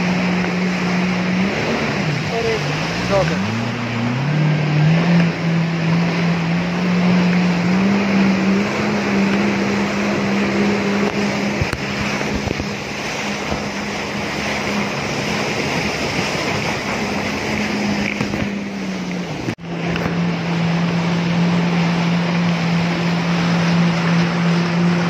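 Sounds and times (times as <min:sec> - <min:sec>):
jet ski engine running: 0:00.0 - 0:25.0.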